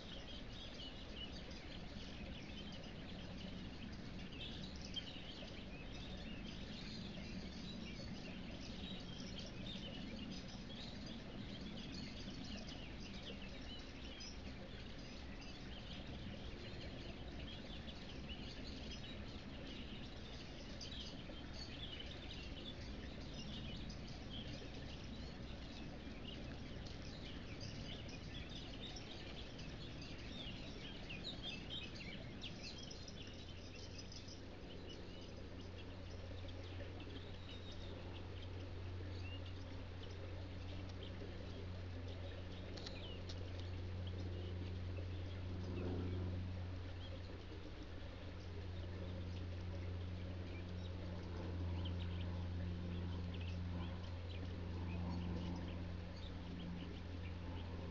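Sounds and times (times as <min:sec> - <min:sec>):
small birds chirping: 0:00.0 - 0:57.9.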